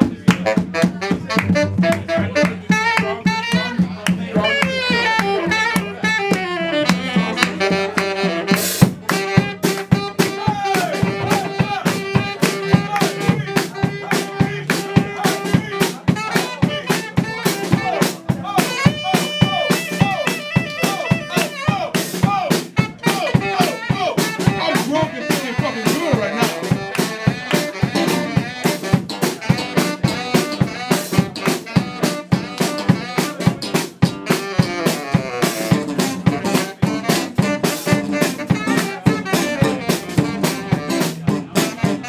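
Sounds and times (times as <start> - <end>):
drum kit beat: 0.0 - 42.0
saxophone playing: 0.3 - 42.0
electric and acoustic guitars: 24.1 - 42.0.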